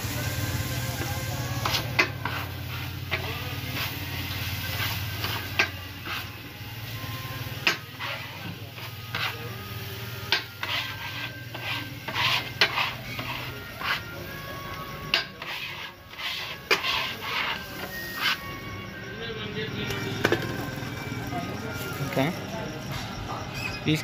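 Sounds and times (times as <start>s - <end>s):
metal spatula scraping griddle: 0.9s - 18.7s.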